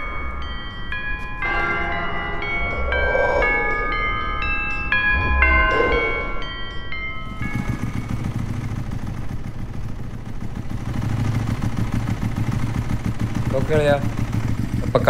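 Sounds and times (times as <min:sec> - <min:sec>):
chiming music: 0:00.0 - 0:09.7
motorcycle engine running: 0:07.3 - 0:15.0.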